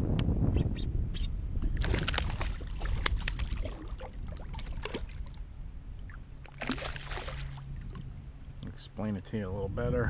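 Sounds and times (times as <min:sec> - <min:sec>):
wind rumble on microphone: 0:00.0 - 0:10.0
fish splashing in water: 0:01.8 - 0:05.4, 0:06.4 - 0:08.1.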